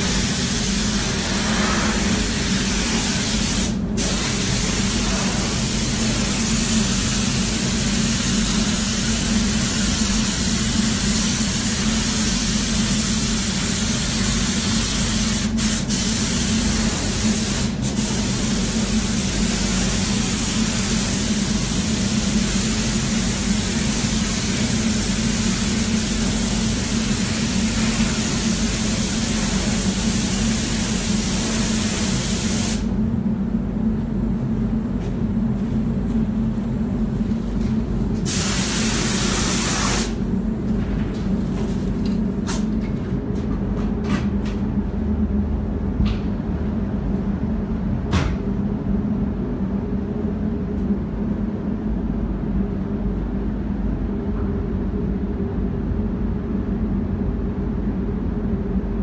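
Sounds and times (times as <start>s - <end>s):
paint spray gun hissing: 0.0s - 32.9s, 38.3s - 40.2s
steady low hum: 0.0s - 59.0s.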